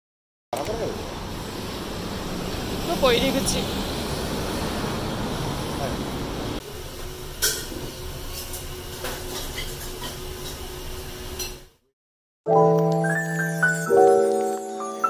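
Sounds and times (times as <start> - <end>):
mallet percussion music: 12.5 - 15.0.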